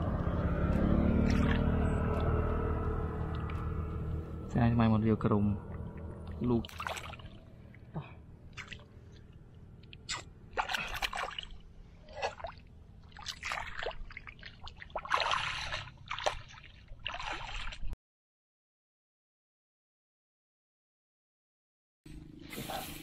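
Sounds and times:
shallow water splashing: 0:01.2 - 0:02.4, 0:05.8 - 0:18.0.

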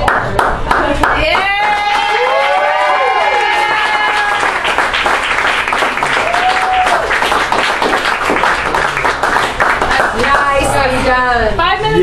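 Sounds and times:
people clapping: 0:00.0 - 0:10.8.

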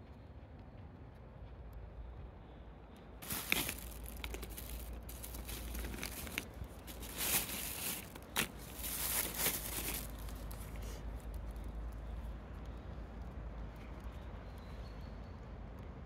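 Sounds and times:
crinkling and rustling materials: 0:03.2 - 0:12.0.

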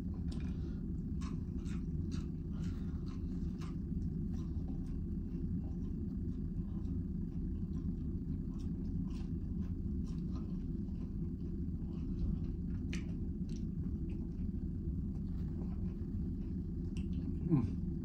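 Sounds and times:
low room hum: 0:00.0 - 0:18.0
person chewing crunchy food: 0:00.0 - 0:18.0.

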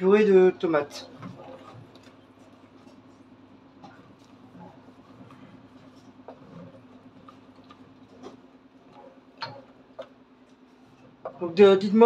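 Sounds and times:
steady low hum: 0:00.0 - 0:12.0
cooking clicks and taps: 0:06.1 - 0:11.4.

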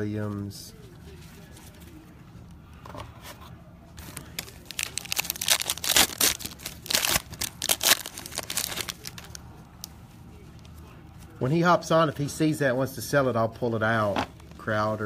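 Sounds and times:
foil wrapper tearing and crinkling: 0:04.0 - 0:09.4.

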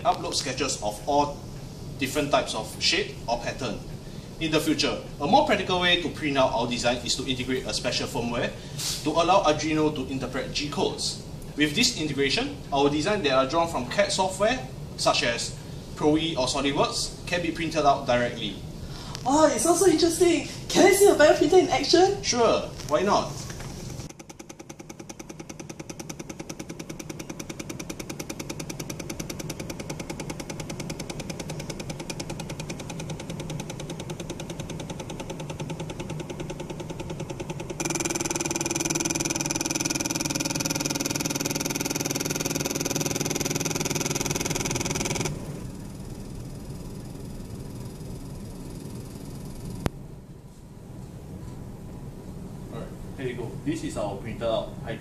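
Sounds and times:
steady hum: 0:00.0 - 0:55.0
stepper motors ticking buzz: 0:24.0 - 0:50.0.

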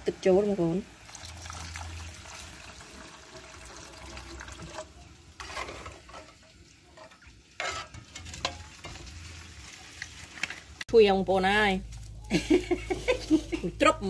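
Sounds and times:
water poured into bubbling sauce: 0:00.8 - 0:05.0
metal ladle stirring in pot: 0:02.4 - 0:10.7.

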